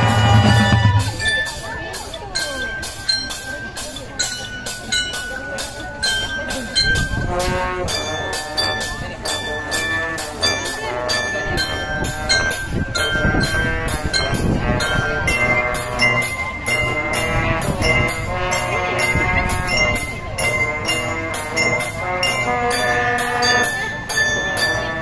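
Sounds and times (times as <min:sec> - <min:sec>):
brass section holding chords: 0:00.0 - 0:01.2, 0:07.3 - 0:23.7
mallet keyboards: 0:00.0 - 0:25.0
steady percussion beat: 0:00.0 - 0:25.0.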